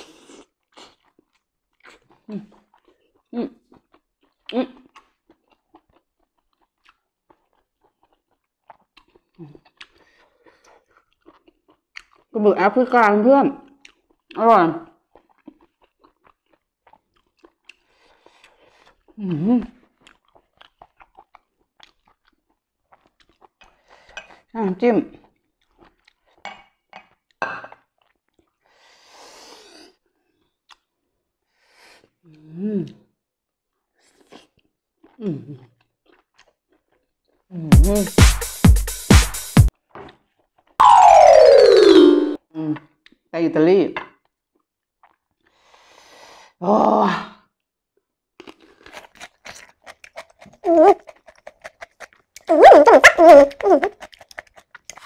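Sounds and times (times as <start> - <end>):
wet chewing sounds: 0.0 - 12.4, 13.6 - 14.4, 15.0 - 24.5, 25.2 - 28.8, 29.9 - 31.0, 33.9 - 37.5, 44.2 - 45.8, 48.4 - 55.0.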